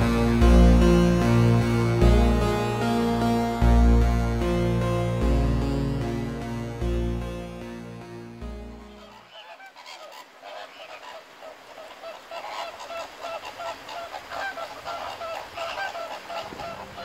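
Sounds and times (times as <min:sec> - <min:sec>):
flock of birds calling: 0:08.8 - 0:17.0.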